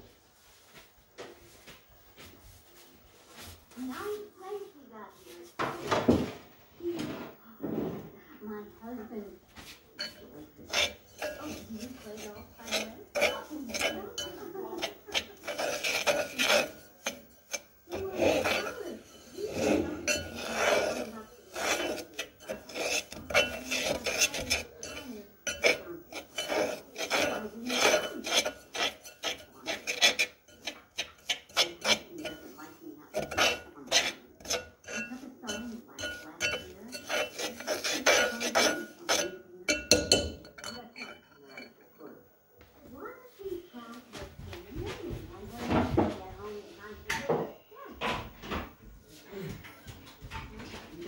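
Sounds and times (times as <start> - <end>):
fork scraping sugar in pan: 9.6 - 42.0.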